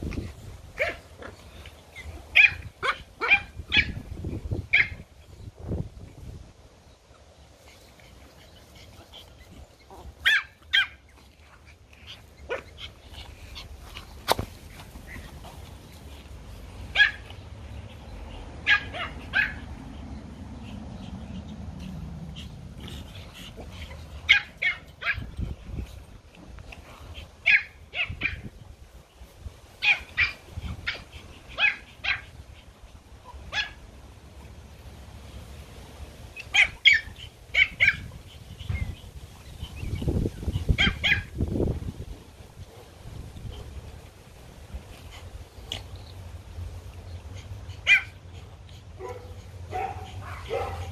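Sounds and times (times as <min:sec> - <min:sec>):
small dogs yapping: 0:00.1 - 0:05.1, 0:07.8 - 0:15.6, 0:16.9 - 0:19.8, 0:21.8 - 0:26.1, 0:26.7 - 0:28.5, 0:29.7 - 0:33.9, 0:36.2 - 0:41.5, 0:47.1 - 0:50.9.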